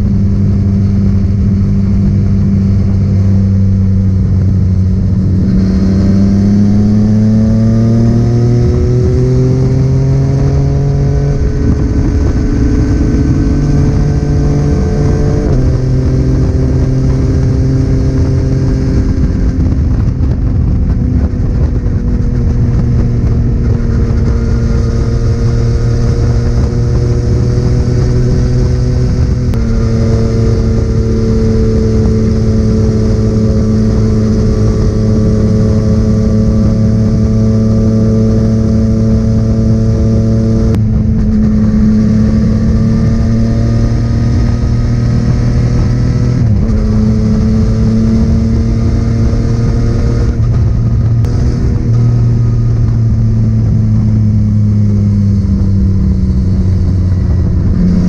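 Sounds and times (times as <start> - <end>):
motorcycle engine accelerating: 0.0 - 58.0
wind rush on microphone: 0.0 - 58.0.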